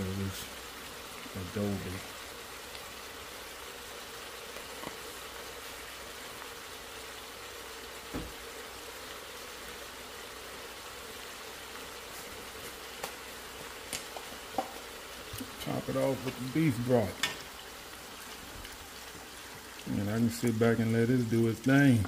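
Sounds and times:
meat sizzling in a pot: 0:00.0 - 0:22.0.

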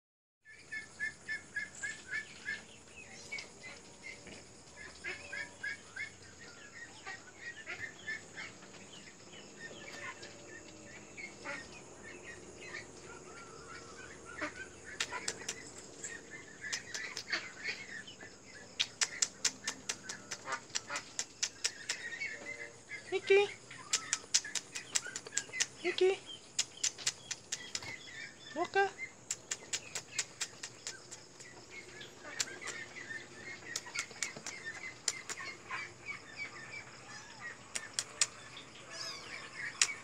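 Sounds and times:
sharp clicks: 0:14.9 - 0:15.8, 0:16.6 - 0:17.4, 0:18.8 - 0:22.2, 0:23.8 - 0:25.9, 0:26.5 - 0:28.0, 0:29.3 - 0:31.6, 0:32.3 - 0:32.9, 0:33.7 - 0:35.5, 0:37.7 - 0:38.4, 0:39.8 - 0:40.0.

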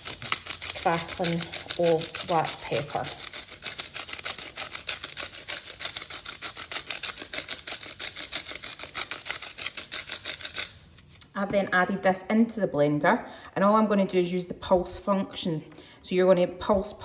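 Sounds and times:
pepper mill grinding: 0:00.0 - 0:11.2.

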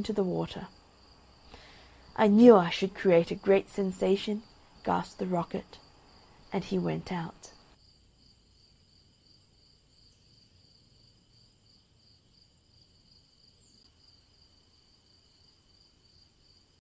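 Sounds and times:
crickets chirping: 0:00.7 - 0:16.8.

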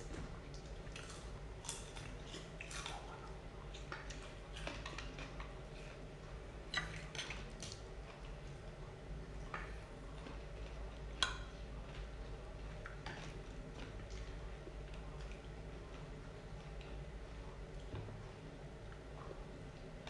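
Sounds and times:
low steady hum: 0:00.0 - 0:20.0
chewing and lip smacks: 0:00.5 - 0:06.0.

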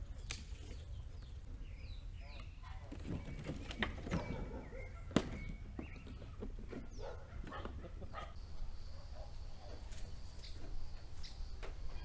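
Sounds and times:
wooden boards knocking and clattering: 0:02.9 - 0:07.9.

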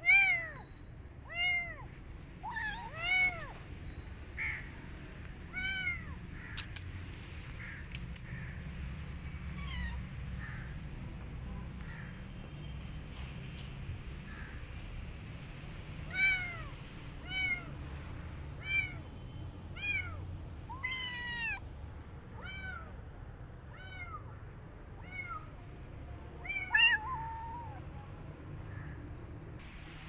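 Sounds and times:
kitten meowing: 0:01.3 - 0:03.6, 0:05.5 - 0:06.9, 0:09.6 - 0:10.1, 0:16.1 - 0:17.8, 0:19.8 - 0:21.6, 0:22.4 - 0:22.9, 0:23.7 - 0:24.2, 0:25.0 - 0:25.6, 0:26.4 - 0:27.8.

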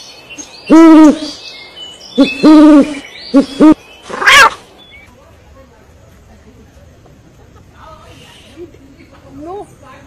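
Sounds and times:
owl hooting: 0:00.7 - 0:01.4, 0:02.2 - 0:04.6.

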